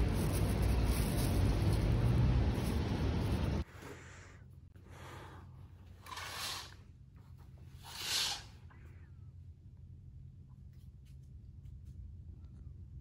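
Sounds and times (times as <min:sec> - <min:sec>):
low steady hum: 0:08.5 - 0:13.0.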